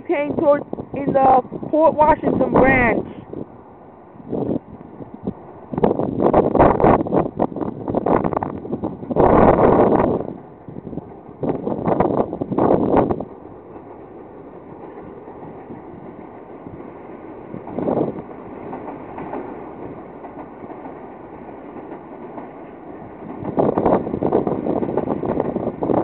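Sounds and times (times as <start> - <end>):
train wheels rumbling on rail: 0.0 - 26.0
wind gusts on microphone: 0.0 - 26.0.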